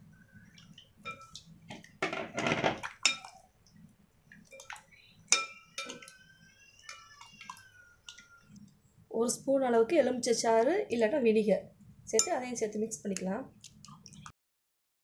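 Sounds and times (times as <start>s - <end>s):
liquid sloshing in a bowl: 0.2s - 8.8s, 12.1s - 14.3s
clinks against glass bowl: 5.3s - 6.2s, 12.2s - 12.4s.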